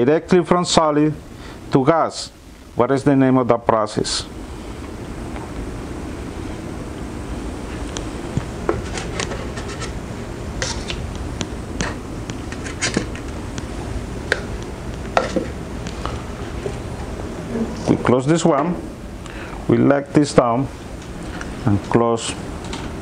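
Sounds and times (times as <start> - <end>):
low background hum: 0.0 - 23.0.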